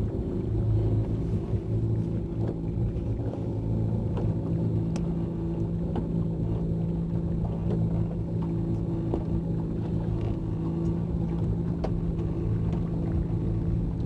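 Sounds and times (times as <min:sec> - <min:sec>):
motorboat engine drone: 0:00.0 - 0:14.0
light ticks: 0:04.1 - 0:06.2.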